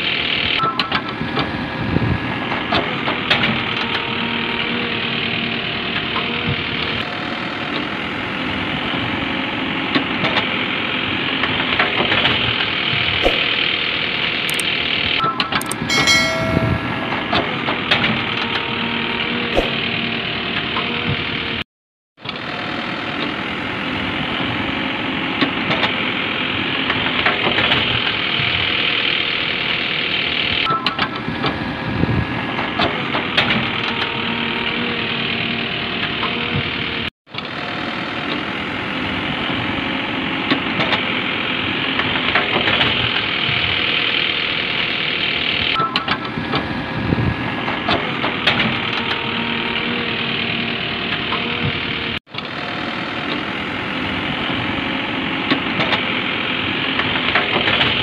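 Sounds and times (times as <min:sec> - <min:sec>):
engine running steadily: 0:00.0 - 0:15.6, 0:22.3 - 0:58.0
scattered clicks: 0:15.6 - 0:15.9.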